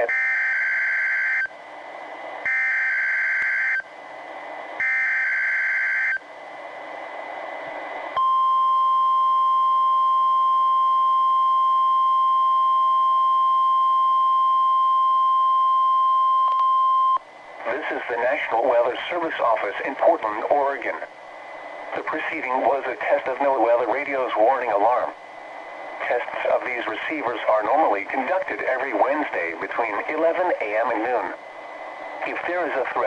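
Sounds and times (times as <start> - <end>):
steady warning alarm tone: 0.0 - 1.5, 2.5 - 3.9, 4.8 - 6.2
radio hiss: 6.2 - 8.2, 17.2 - 33.0.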